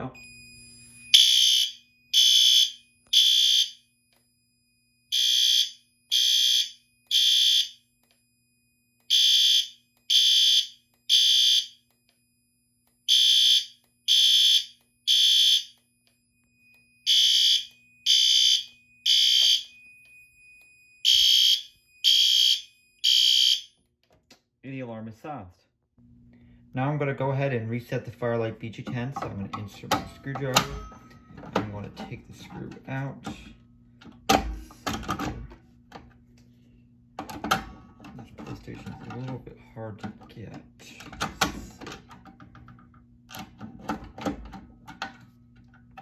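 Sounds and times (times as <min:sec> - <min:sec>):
fire alarm horn blasts: 0:00.0 - 0:08.2, 0:08.9 - 0:12.0, 0:13.0 - 0:23.8.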